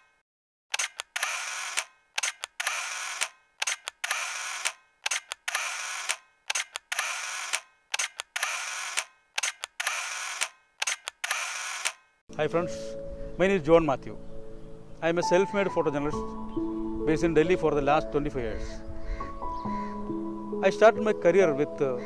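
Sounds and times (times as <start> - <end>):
camera shutter clicks: 0.7 - 12.0.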